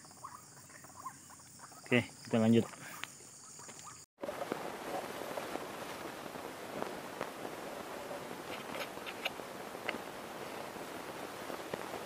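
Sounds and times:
faint ticks and rustles: 0.2s - 12.0s
outdoor hiss: 4.2s - 12.0s.

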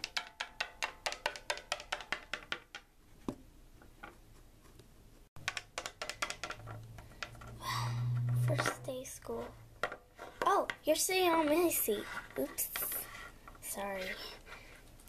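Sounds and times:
plastic figure tapping on wood: 0.0s - 3.4s, 5.4s - 7.4s
low hum: 6.7s - 9.8s.

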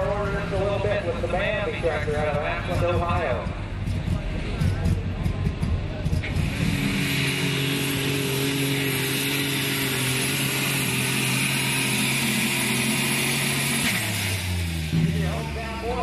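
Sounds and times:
tractor engine running flat out: 0.0s - 16.0s
hiss: 6.3s - 14.5s.

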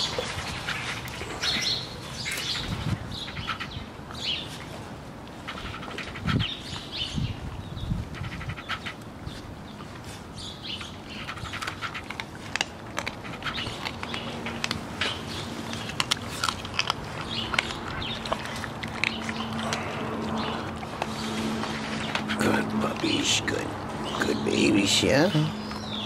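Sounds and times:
puppies chewing bones: 0.0s - 26.0s
bones cracking: 11.3s - 23.0s.

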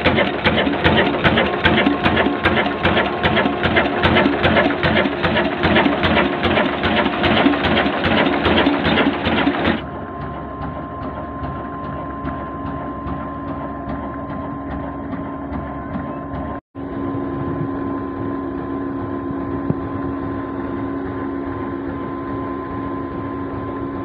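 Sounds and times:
diesel engine clattering: 0.0s - 16.6s
engine drone with thin whine: 0.0s - 24.0s.

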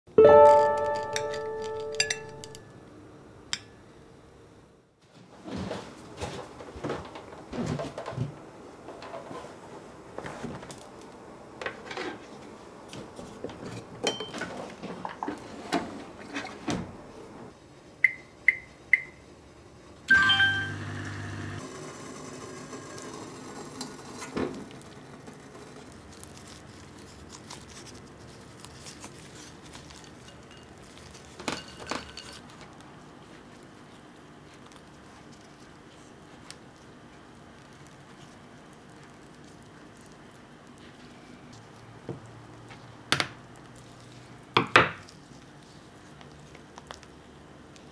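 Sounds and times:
appliance beeps: 18.0s - 19.2s, 20.1s - 21.6s.

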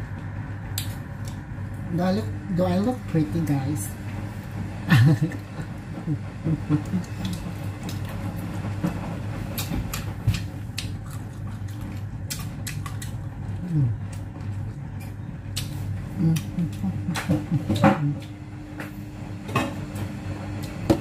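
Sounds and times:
washing machine running: 0.0s - 21.0s
person chewing: 6.8s - 8.2s, 9.5s - 17.2s
person humming mm: 13.6s - 14.0s, 16.2s - 17.2s.

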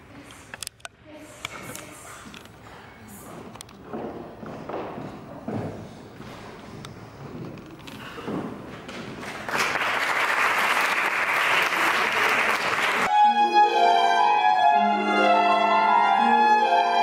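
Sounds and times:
faint footsteps: 0.2s - 9.5s
audience applause: 9.2s - 13.1s
violin melody: 13.1s - 17.0s.

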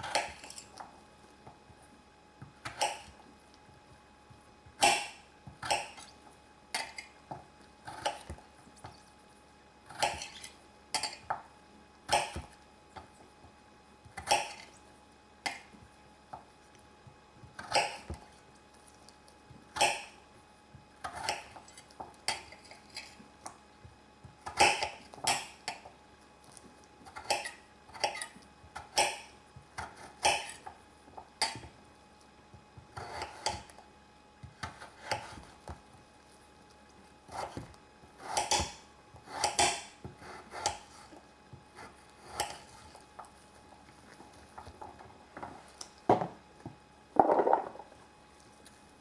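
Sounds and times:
utensil scraping a cooking pot: 27.1s - 28.4s, 32.9s - 33.7s, 38.2s - 43.2s.

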